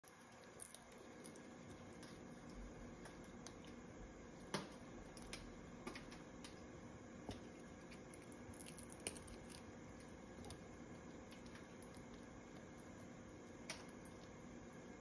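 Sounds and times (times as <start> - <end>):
parrot beak cracking nut: 7.3 - 9.6.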